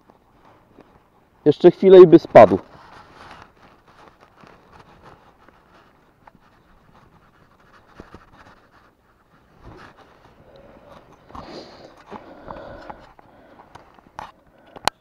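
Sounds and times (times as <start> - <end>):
hands rustling in net mesh: 2.3 - 12.7.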